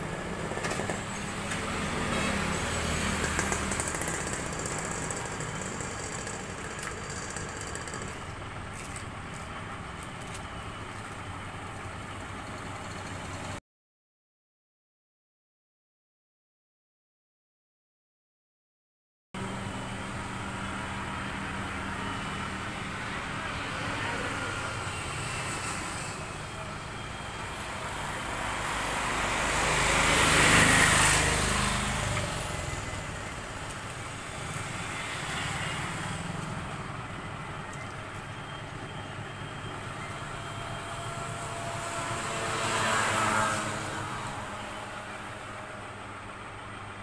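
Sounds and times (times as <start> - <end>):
road traffic noise: 0.0 - 13.6, 19.4 - 47.0
vehicle passing close by: 0.1 - 8.1, 20.3 - 37.1, 39.7 - 46.5.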